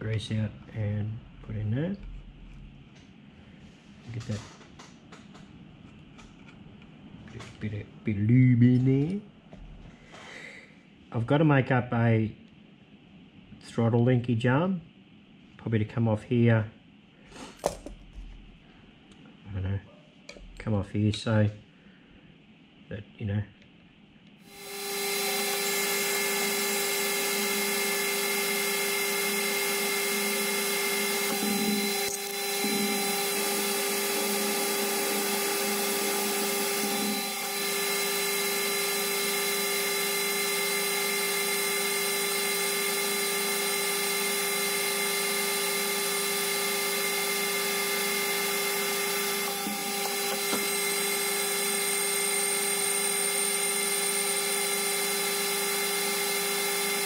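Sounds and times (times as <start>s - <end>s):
cutting tool turning metal: 24.5s - 57.0s
metal lathe motor whine: 24.5s - 57.0s.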